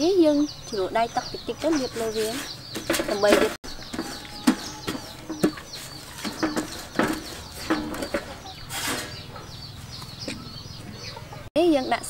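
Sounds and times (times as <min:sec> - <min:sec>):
small birds chirping: 0:00.0 - 0:12.0
chickens clucking: 0:00.2 - 0:12.0
rustling: 0:01.7 - 0:10.2.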